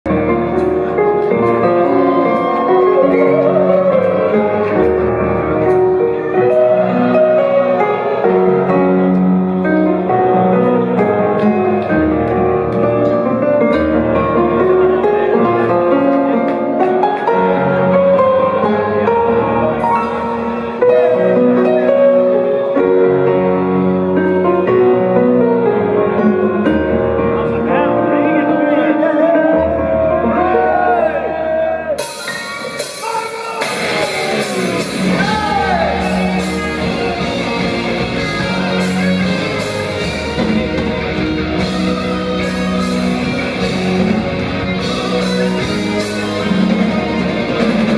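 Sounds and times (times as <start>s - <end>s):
keyboard chords and melody: 0.0s - 47.9s
bass guitar notes: 33.6s - 47.9s.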